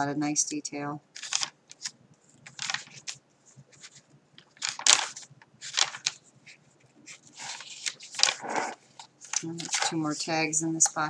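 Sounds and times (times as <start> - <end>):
paper pages turning: 1.2 - 10.4.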